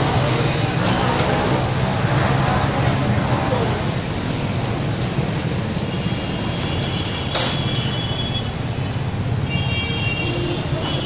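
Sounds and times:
street traffic rumble: 0:00.0 - 0:11.0
thin high squeal: 0:06.7 - 0:07.9.

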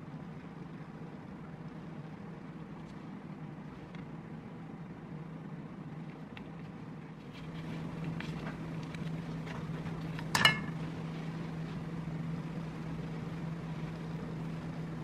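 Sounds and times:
low hum: 0:00.0 - 0:15.0
parchment paper rustling: 0:07.2 - 0:10.3.

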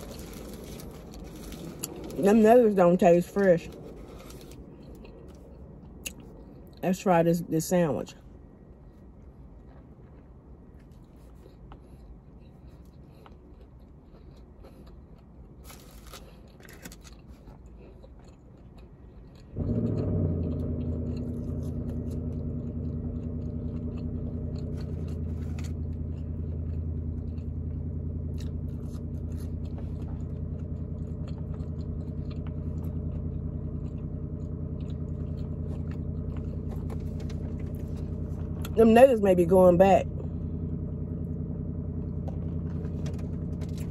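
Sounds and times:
wrapper rustling: 0:00.0 - 0:02.2
car engine idling: 0:00.0 - 0:06.8, 0:19.5 - 0:43.9
faint chewing: 0:00.0 - 0:06.8, 0:08.7 - 0:38.8.

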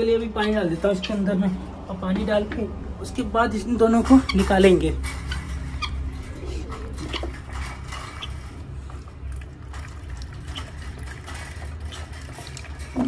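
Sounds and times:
water pouring from plastic bottle: 0:08.6 - 0:13.0.

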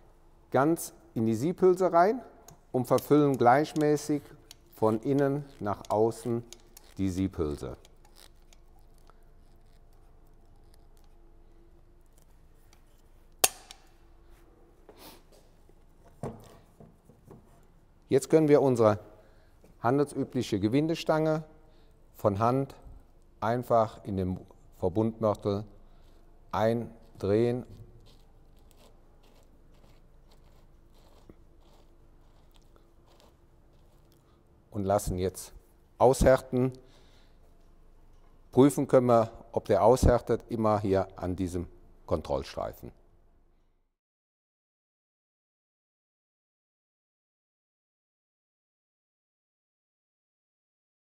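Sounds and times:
sharp click: 0:13.4 - 0:13.9
threaded rod crunching in mortar: 0:28.0 - 0:34.2.

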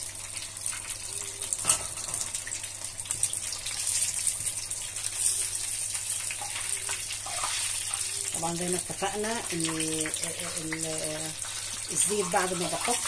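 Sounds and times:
hot oil sizzling and crackling: 0:00.0 - 0:13.0.

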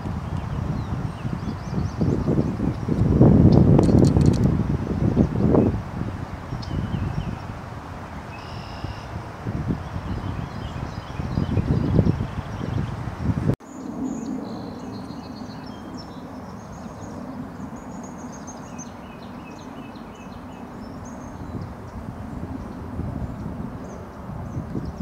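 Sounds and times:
low rumbling on microphone: 0:00.0 - 0:08.4, 0:09.0 - 0:13.6, 0:20.8 - 0:25.0
songbirds chirping: 0:06.4 - 0:07.6, 0:08.3 - 0:25.0.

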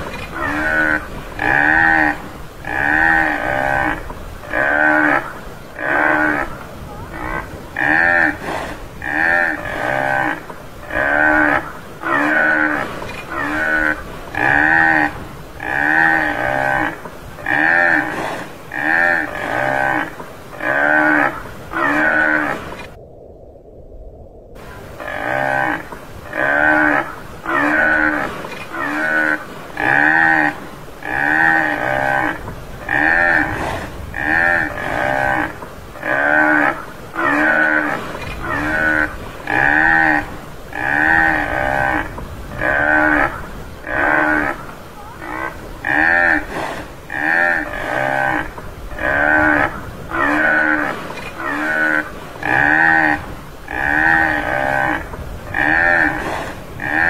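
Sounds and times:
buffalo mooing: 0:00.0 - 0:22.9, 0:25.0 - 0:57.0.

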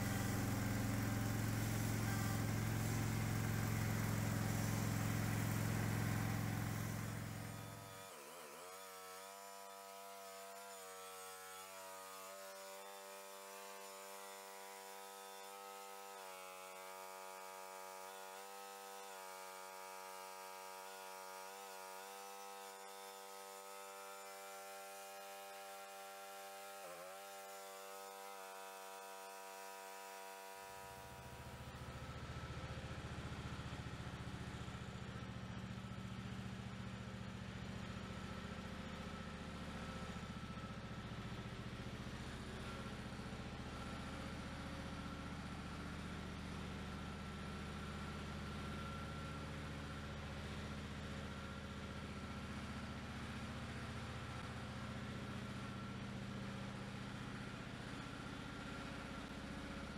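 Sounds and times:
tractor engine running: 0:00.0 - 0:07.8.

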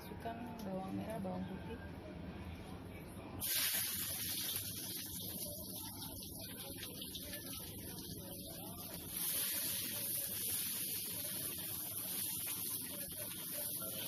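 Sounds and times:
shallots sizzling in oil: 0:03.4 - 0:14.0.

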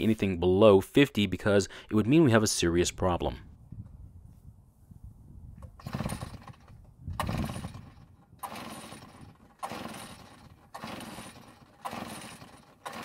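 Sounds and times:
recoil starter pulls cranking engine: 0:05.6 - 0:13.0.

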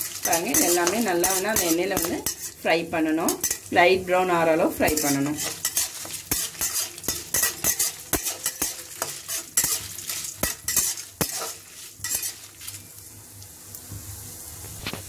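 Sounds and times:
scraping strokes against pan: 0:00.0 - 0:02.6, 0:04.8 - 0:12.8
spices sizzling in oil: 0:00.0 - 0:15.0.

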